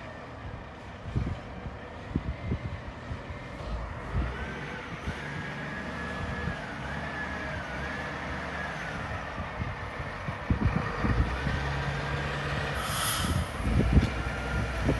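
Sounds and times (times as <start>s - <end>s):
garbage truck diesel engine: 0.0s - 14.9s
wind buffeting microphone: 0.4s - 6.9s, 9.0s - 14.9s
short hiss: 12.8s - 13.6s.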